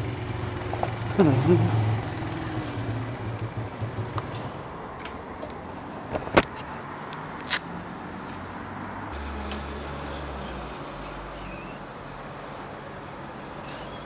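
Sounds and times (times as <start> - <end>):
motorcycle engine idling: 0.0 - 4.6.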